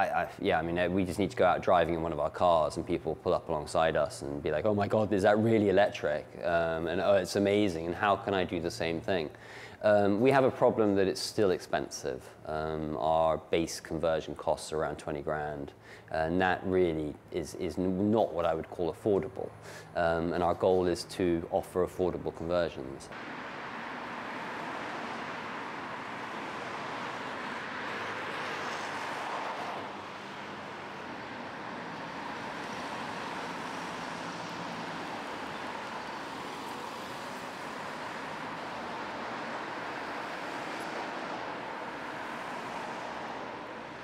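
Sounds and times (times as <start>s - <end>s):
road traffic passing: 0.0s - 11.5s, 18.4s - 44.0s
vehicle passing close: 23.1s - 44.0s.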